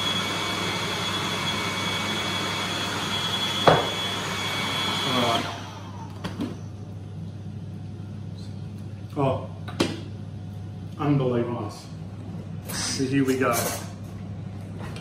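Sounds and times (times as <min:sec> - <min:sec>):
food processor whining: 0:00.0 - 0:06.7.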